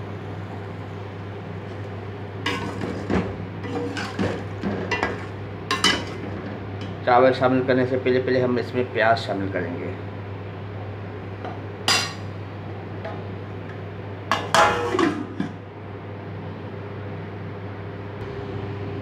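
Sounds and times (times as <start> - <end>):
metal kitchenware clinking on pot: 2.5 - 6.2, 11.9 - 12.2, 14.3 - 15.5.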